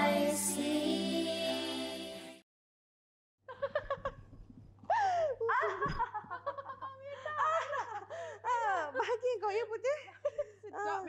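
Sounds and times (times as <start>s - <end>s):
woman laughing: 3.5s - 4.3s, 4.9s - 11.0s.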